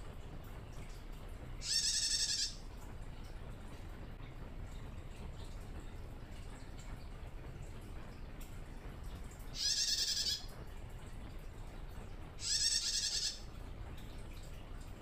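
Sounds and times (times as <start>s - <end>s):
bird chattering trills: 1.6s - 2.6s, 9.5s - 10.5s, 12.4s - 13.5s.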